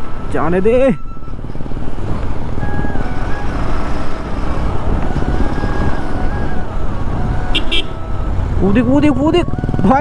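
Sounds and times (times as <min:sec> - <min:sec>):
wind rumble on microphone: 0:00.0 - 0:10.0
faint stepping melody: 0:01.0 - 0:09.6.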